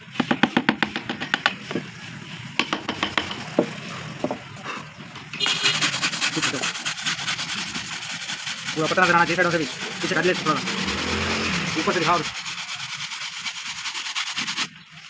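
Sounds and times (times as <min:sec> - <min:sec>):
hand brushing across wood: 0:05.4 - 0:14.7.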